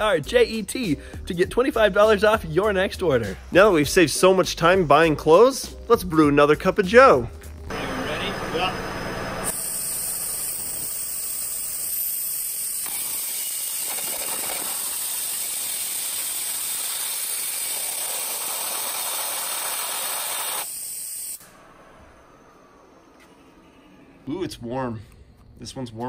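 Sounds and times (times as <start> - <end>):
high-pressure water jet hissing: 7.7 - 21.4.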